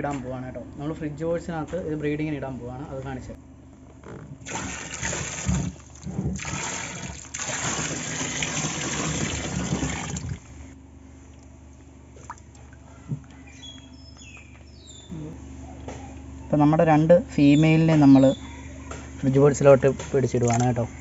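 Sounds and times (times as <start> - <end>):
water pouring and splashing: 4.4 - 10.5.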